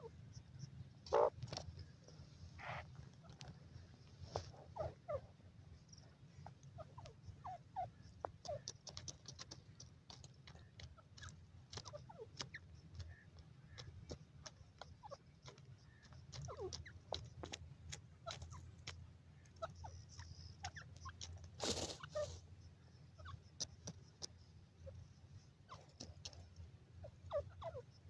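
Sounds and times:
bird chirps and clucks: 0.0 - 28.0
thin sharp clicks: 8.4 - 19.0, 23.6 - 24.4.

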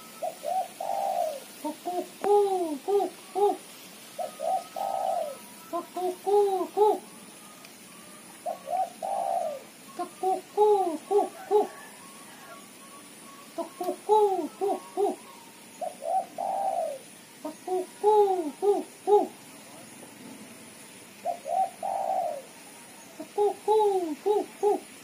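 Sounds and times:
dove cooing: 0.0 - 19.9, 21.2 - 25.0.

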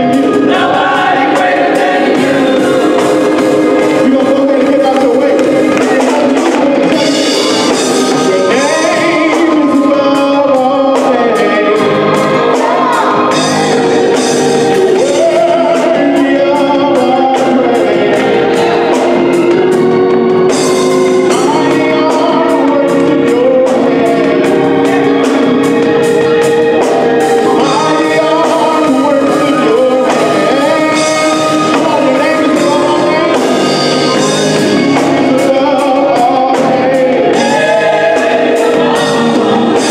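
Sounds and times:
drum kit cymbal beat: 0.0 - 39.9
electric bass: 0.0 - 39.9
gospel choir singing: 0.0 - 39.9
organ: 0.0 - 39.9.

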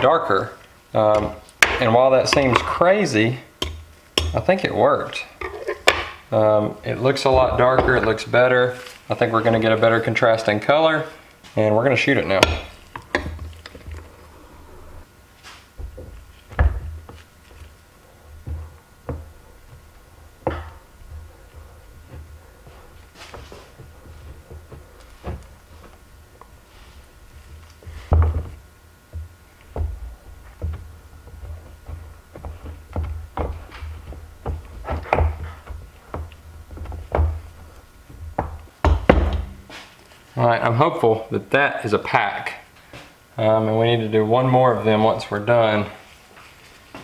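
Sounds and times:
low steady hum: 0.0 - 47.0.

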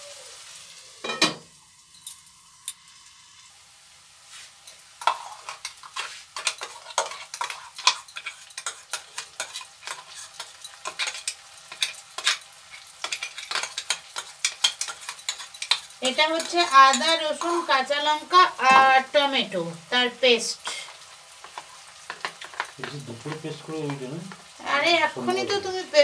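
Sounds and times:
onions sizzling in oil: 0.0 - 26.0
wooden spatula scraping a pan: 4.3 - 19.3, 20.7 - 24.4.

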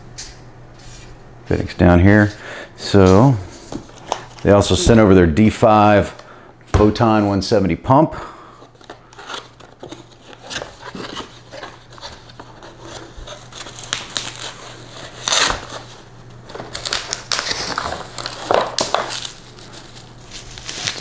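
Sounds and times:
plastic wrapping rustling: 8.6 - 21.0.

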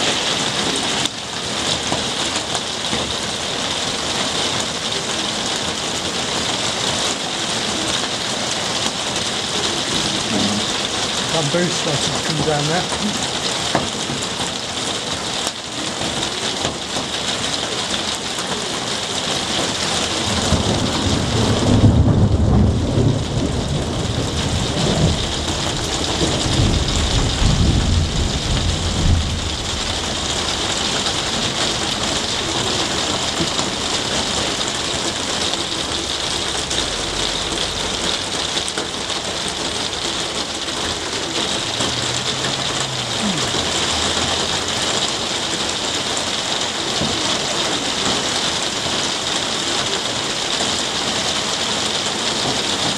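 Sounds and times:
heavy rain on leaves and paving: 0.0 - 52.9
thunder rumbling: 20.2 - 45.9.

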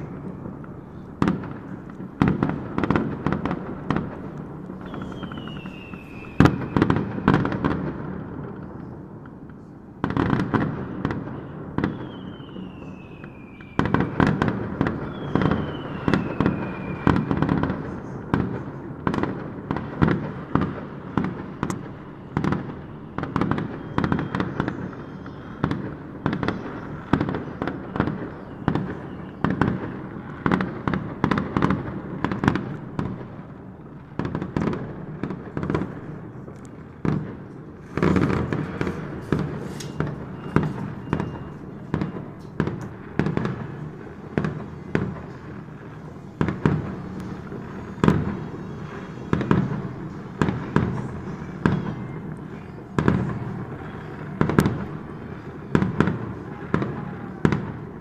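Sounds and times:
fireworks bangs and crackles: 0.0 - 58.0
falling firework whistles: 4.8 - 7.9, 10.0 - 33.1, 37.8 - 58.0.

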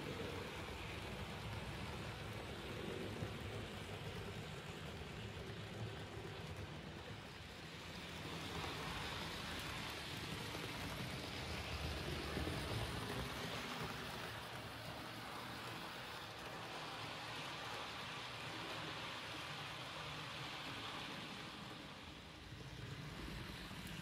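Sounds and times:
model train whirring rumble: 0.0 - 24.0.

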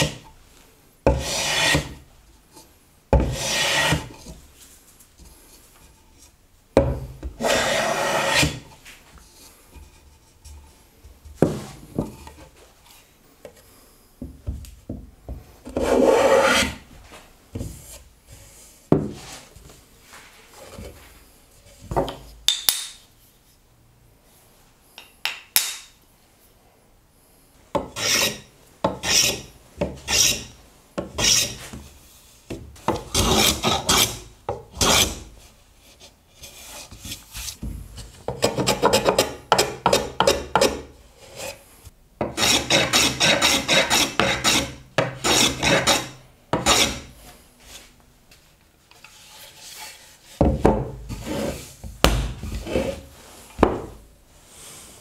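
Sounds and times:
block scraping along wood: 1.1 - 2.0, 3.2 - 4.4, 7.4 - 8.8, 15.7 - 16.8, 27.8 - 31.8, 32.9 - 34.2, 36.4 - 41.6, 42.2 - 47.1, 49.0 - 51.7, 52.4 - 53.8.

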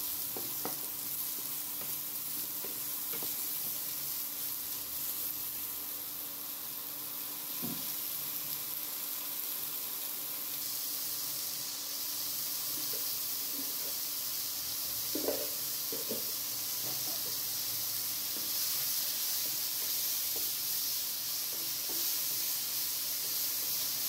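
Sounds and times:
mushrooms sizzling in oil: 0.0 - 24.0.

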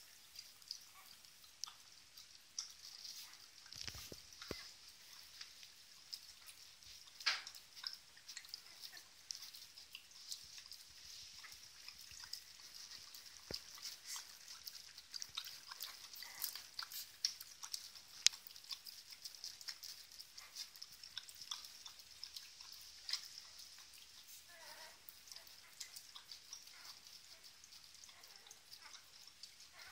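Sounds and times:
puppies suckling wet smacking: 0.0 - 29.9.

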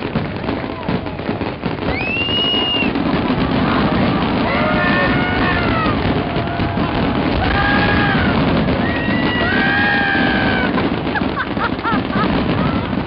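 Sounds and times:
fireworks bursting: 0.0 - 13.0
long sliding whistle tones: 1.9 - 3.0.

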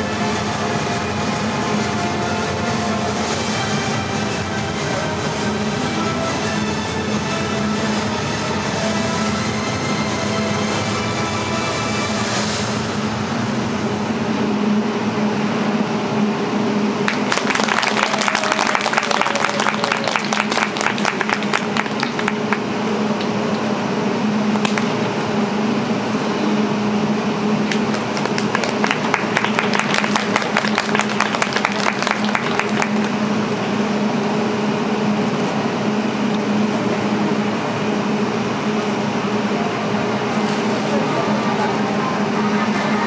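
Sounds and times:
steady low hum: 0.0 - 43.0
audience clapping: 17.0 - 23.3, 27.6 - 33.2.

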